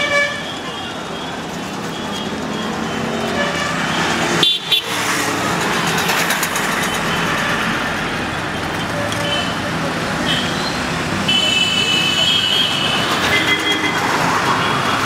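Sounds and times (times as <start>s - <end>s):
road traffic noise: 0.0s - 15.0s
vehicle horn toots: 11.3s - 14.1s.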